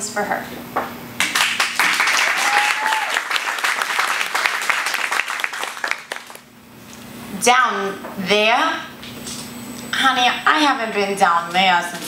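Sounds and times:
audience applauding: 1.2s - 6.4s.

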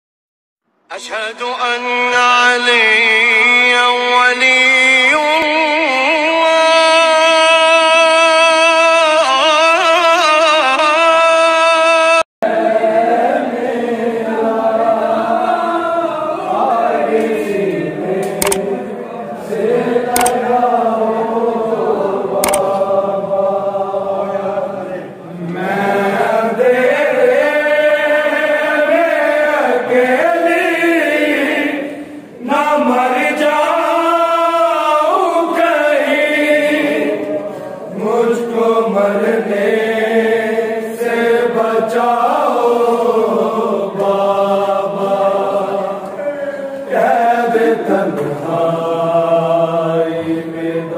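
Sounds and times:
voices chanting in chorus: 12.4s - 50.9s
sharp clicks: 18.2s - 18.6s, 20.2s - 20.4s, 22.4s - 22.7s.

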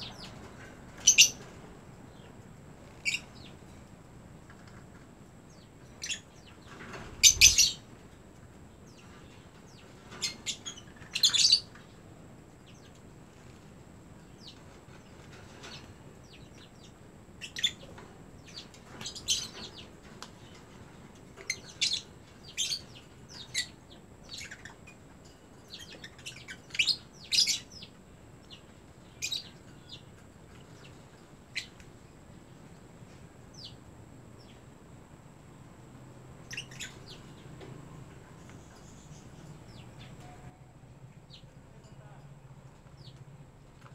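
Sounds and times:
lovebirds chirping: 0.0s - 3.7s, 5.5s - 7.9s, 8.7s - 12.0s, 14.2s - 34.7s, 36.4s - 40.6s.

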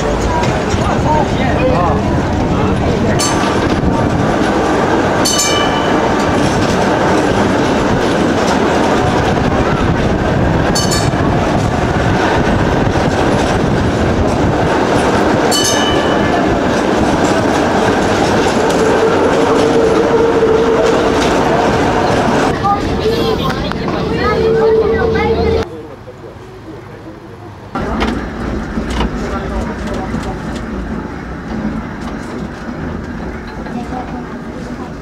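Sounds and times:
tram wheels rumbling on rail: 0.0s - 35.0s
sharp metallic clanks: 5.2s - 6.4s, 15.5s - 16.4s.

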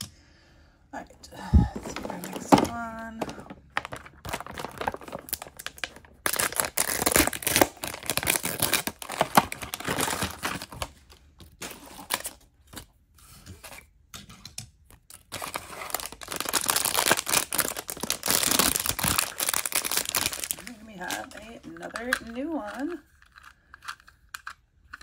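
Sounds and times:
plastic packaging tearing and crinkling: 1.5s - 12.9s, 15.1s - 21.4s.

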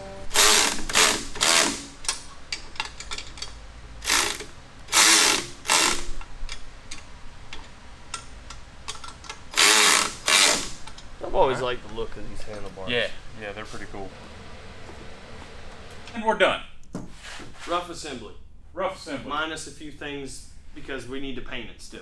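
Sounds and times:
cordless power tool tightening bolts: 0.4s - 2.2s, 4.0s - 6.2s, 8.9s - 10.8s.

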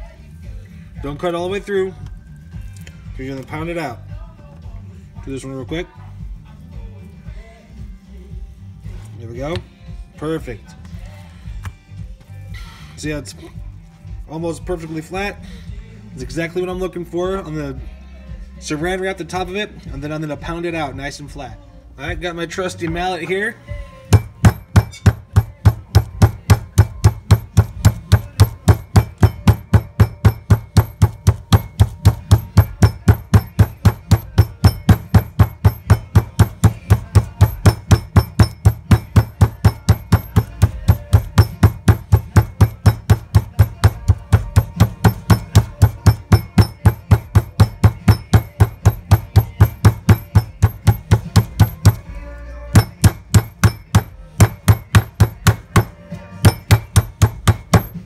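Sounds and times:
meat mallet pounding chicken: 24.1s - 52.1s, 52.7s - 58.0s.

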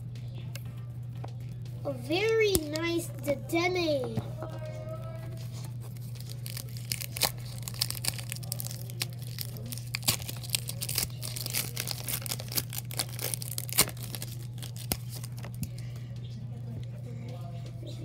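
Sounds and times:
steady low hum: 0.0s - 18.0s
foil wrapper crinkling and tearing: 5.7s - 15.8s.

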